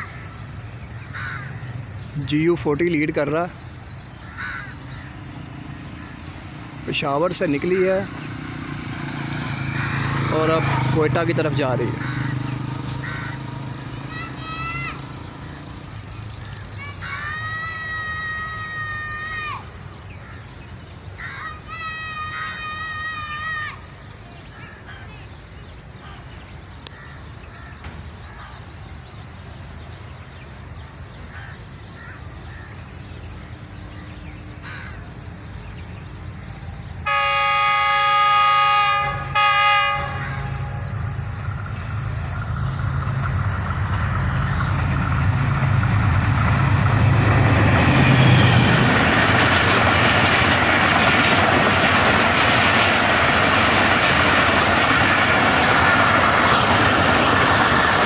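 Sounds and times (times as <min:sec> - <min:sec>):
diesel engine low drone: 0:00.0 - 0:17.2, 0:38.0 - 0:58.0
train wheels rushing on rail: 0:04.7 - 0:20.1, 0:33.1 - 0:58.0
locomotive air horn blasts: 0:37.1 - 0:41.0.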